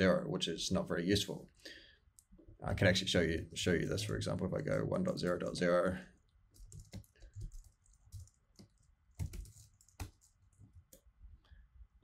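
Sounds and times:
keyboard typing: 0:06.5 - 0:11.1.

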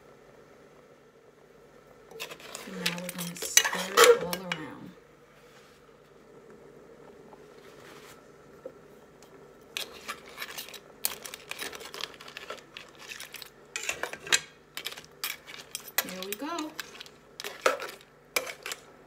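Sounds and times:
faint steady hum: 0:00.0 - 0:19.0
metal spoon scraping a pot: 0:02.1 - 0:04.6, 0:09.8 - 0:18.8.

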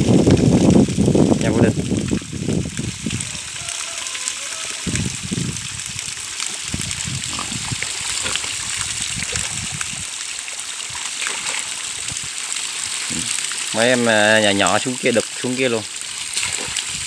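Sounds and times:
hose water spraying: 0:00.0 - 0:17.0
low splashing in mud: 0:04.8 - 0:10.1.

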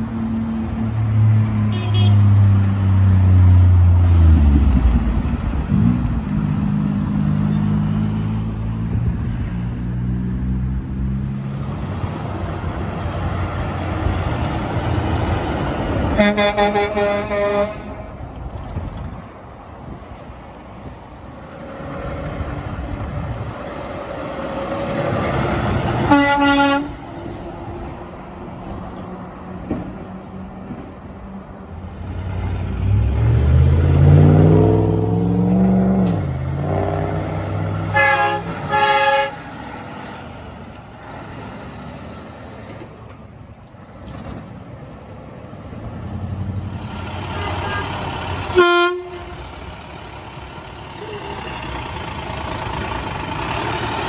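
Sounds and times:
truck air horn blasts: 0:01.7 - 0:02.3, 0:16.2 - 0:18.1, 0:26.0 - 0:27.0, 0:37.9 - 0:39.5, 0:47.3 - 0:49.5
diesel truck engine revving: 0:32.1 - 0:43.1, 0:43.8 - 0:54.0.

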